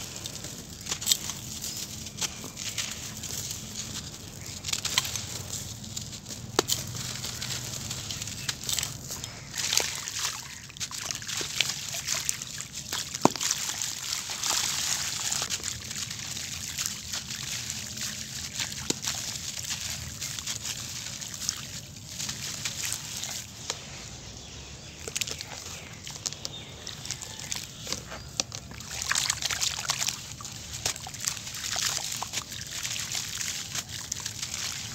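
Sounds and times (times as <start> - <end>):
hands crushing dry grit: 0.0 - 10.0
crumbs splashing in water: 0.0 - 34.9.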